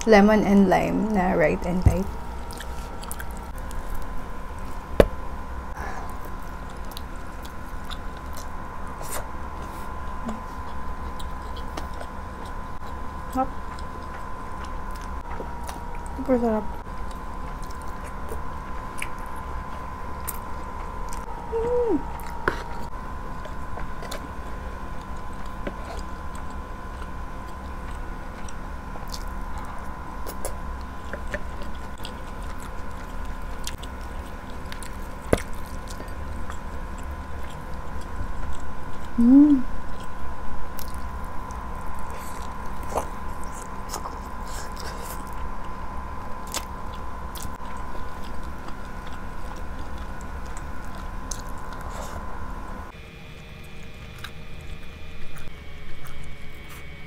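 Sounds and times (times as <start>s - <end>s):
faint hum: 0.0s - 57.0s
chewing and biting food: 2.0s - 5.0s, 6.0s - 57.0s
person humming: 10.2s - 10.5s, 21.3s - 22.7s, 39.1s - 39.8s.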